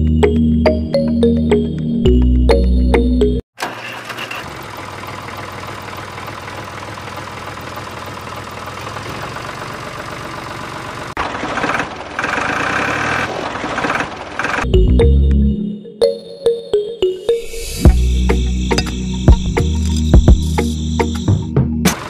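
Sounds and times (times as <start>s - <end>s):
small motor rattling: 3.6s - 14.7s.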